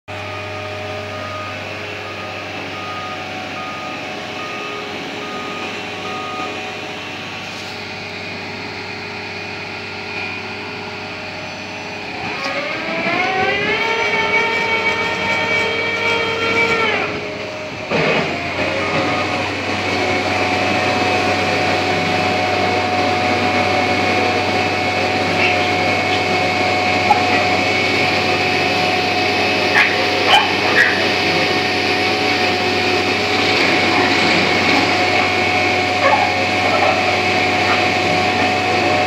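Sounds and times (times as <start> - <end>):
diesel engine running: 0.0 - 39.0
short beeps: 0.2 - 6.8.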